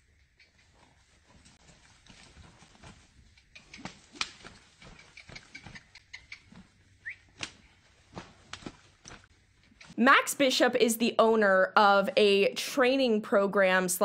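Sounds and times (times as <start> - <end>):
hooves moving through mud: 0.5 - 10.0.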